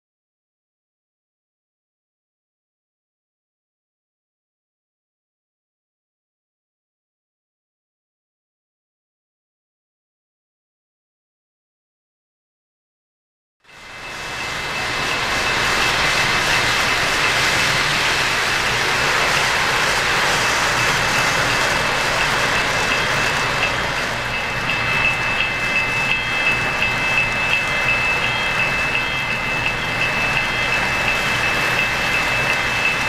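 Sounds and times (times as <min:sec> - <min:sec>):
model train rolling rumble: 0:13.7 - 0:33.0
thin high tone: 0:13.7 - 0:33.0
wheels clicking over rail joints: 0:13.8 - 0:33.0.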